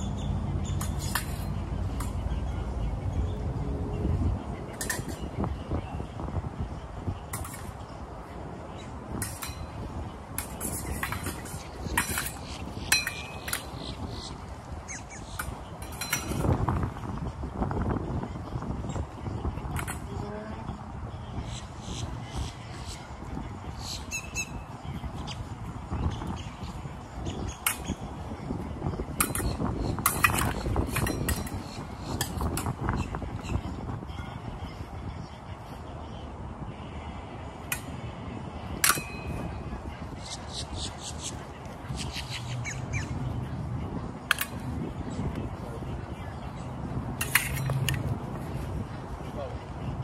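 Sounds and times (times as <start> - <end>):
sharp metallic clinks and scrapes: 0.6 - 2.1, 9.2 - 14.4, 15.2 - 16.6, 29.2 - 32.7, 38.8 - 42.5, 47.2 - 48.1.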